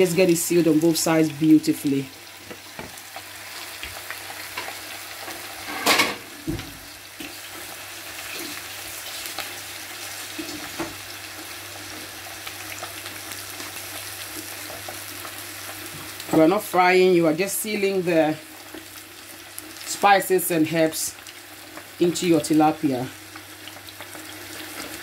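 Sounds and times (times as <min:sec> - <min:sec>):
fish sizzling in a frying pan: 0:00.0 - 0:25.0.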